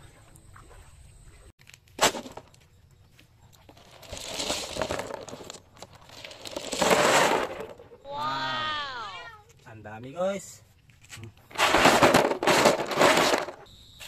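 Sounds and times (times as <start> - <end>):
shells clattering in plastic basin: 3.7 - 8.0, 11.5 - 13.6.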